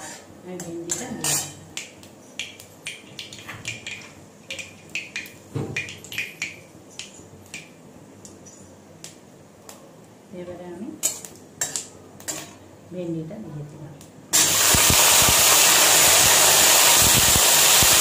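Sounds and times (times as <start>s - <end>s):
seeds popping in hot oil: 0.9s - 7.7s, 14.4s - 18.0s.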